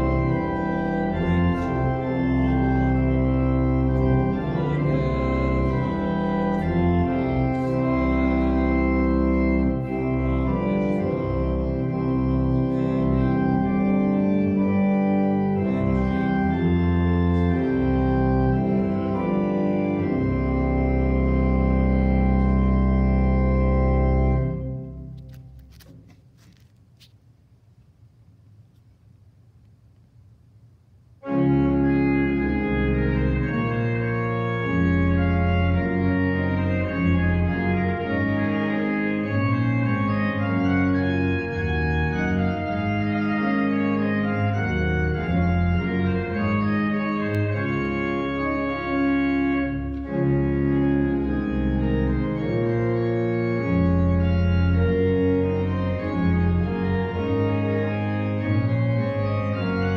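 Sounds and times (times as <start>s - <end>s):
church organ chords: 0.0s - 26.7s, 31.2s - 59.9s.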